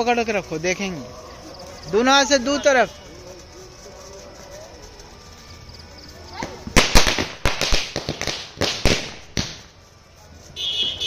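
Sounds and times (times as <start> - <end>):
firecrackers banging: 2.2 - 11.0.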